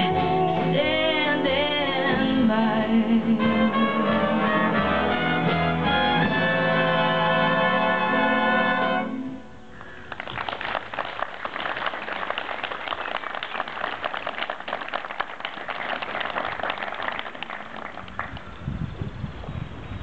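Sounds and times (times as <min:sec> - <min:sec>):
audience applauding: 0:09.8 - 0:18.5.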